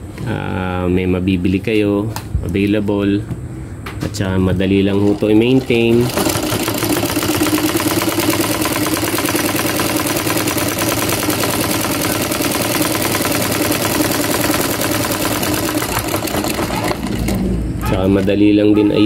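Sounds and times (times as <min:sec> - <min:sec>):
sewing machine running: 0:04.8 - 0:18.3.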